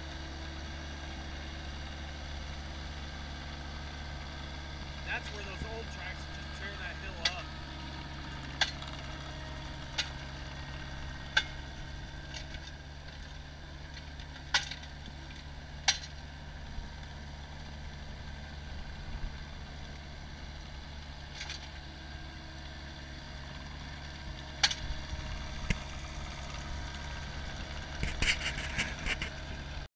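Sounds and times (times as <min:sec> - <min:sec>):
loader engine running: 0:00.0 - 0:29.9
rough clatter: 0:08.6 - 0:09.0, 0:12.3 - 0:16.2, 0:21.3 - 0:21.8, 0:24.6 - 0:25.0, 0:27.9 - 0:29.8.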